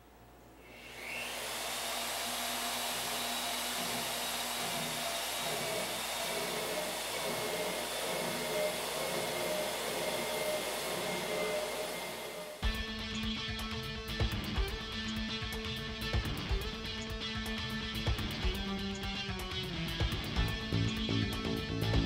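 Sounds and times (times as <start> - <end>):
boring machine motor whine: 0.6 - 12.6
hiss of metal cutting: 0.6 - 12.6.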